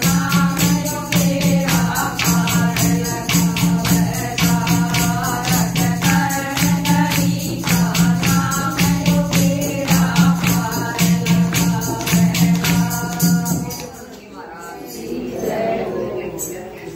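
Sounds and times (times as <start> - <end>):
fast hand-clapping: 0.0 - 13.9
clay pot drum beat: 0.0 - 14.0
women singing in chorus: 0.0 - 16.9.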